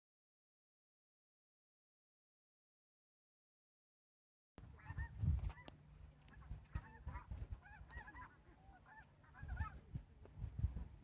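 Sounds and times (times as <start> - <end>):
geese honking: 4.6 - 10.0.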